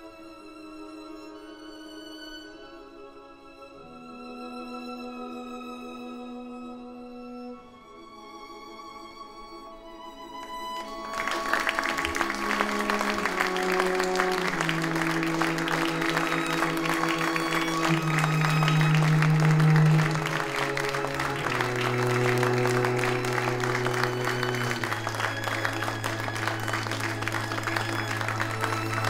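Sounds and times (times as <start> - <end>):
closing music with low held notes: 0.0 - 29.0
audience applauding: 10.4 - 29.0.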